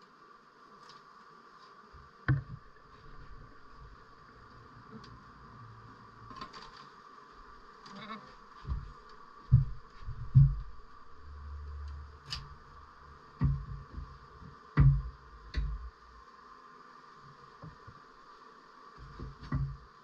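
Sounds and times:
honeybees buzzing: 0.0 - 20.0
dull low thumps: 8.7 - 12.6, 13.3 - 16.0.

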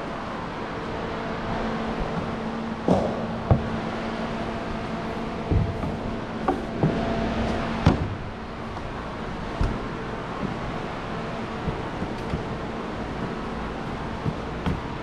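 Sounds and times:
steady low hum: 0.0 - 15.0
clunks and thumps of climbing: 2.0 - 15.0.

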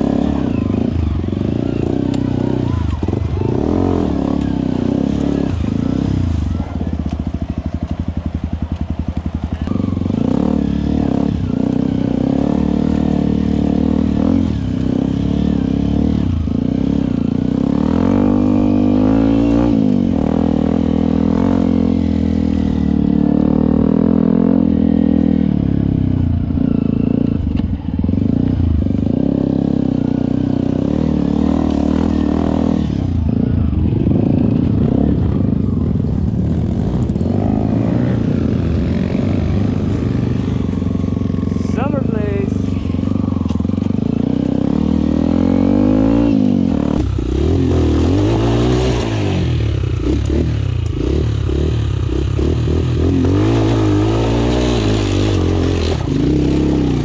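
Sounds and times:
motorcycle engine idling and revving: 0.0 - 57.0.

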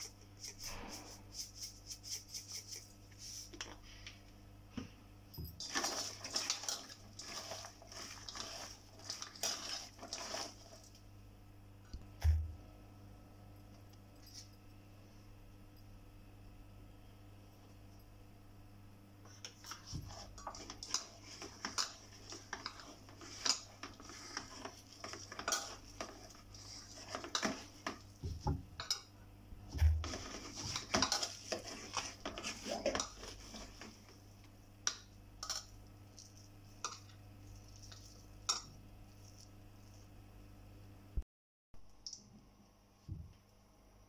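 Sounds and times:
hands mixing batter in steel bowl: 0.0 - 4.2, 5.5 - 11.2, 19.2 - 40.2
moist rustling of onions: 5.6 - 11.0, 19.7 - 27.8, 29.9 - 34.1.

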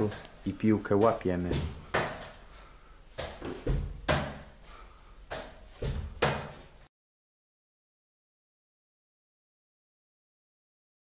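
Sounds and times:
volleyball slapping against door: 1.0 - 2.4, 3.1 - 4.6, 5.3 - 6.8.

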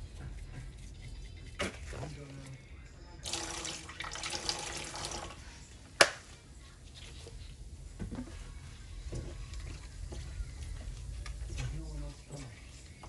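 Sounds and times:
tap water running: 3.2 - 5.4.

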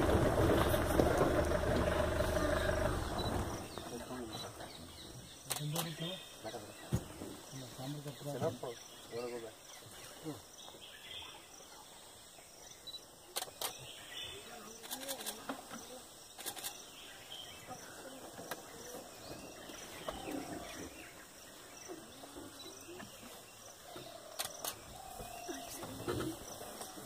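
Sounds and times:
faint low calls: 0.0 - 5.1
insects chirring: 0.0 - 10.9, 11.5 - 27.0.

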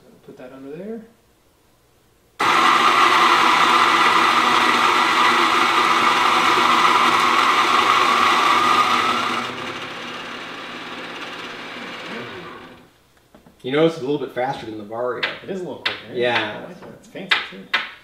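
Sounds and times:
coffee grinder whirring: 2.4 - 12.9.

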